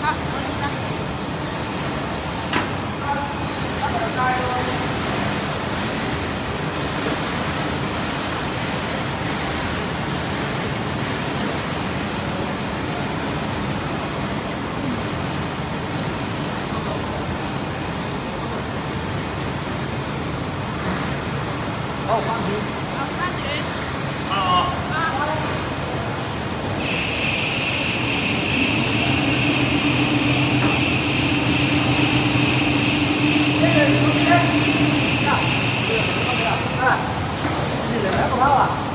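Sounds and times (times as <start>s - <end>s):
machine mechanical hum: 0.0s - 38.9s
machine noise rushing: 26.5s - 37.4s
faint high whine: 26.7s - 38.7s.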